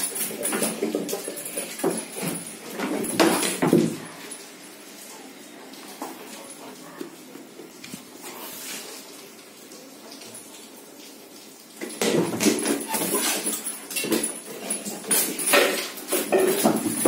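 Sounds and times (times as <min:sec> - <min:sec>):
puppy rustling and clattering: 0:00.0 - 0:04.4, 0:11.8 - 0:17.0.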